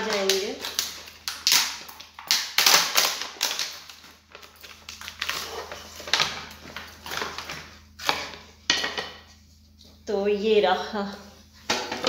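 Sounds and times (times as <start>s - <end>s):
packaging crinkling and rustling: 0.0s - 8.5s.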